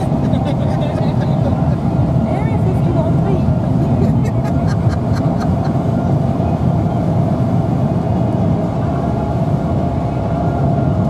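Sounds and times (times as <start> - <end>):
car cabin road and engine noise: 0.0 - 11.0.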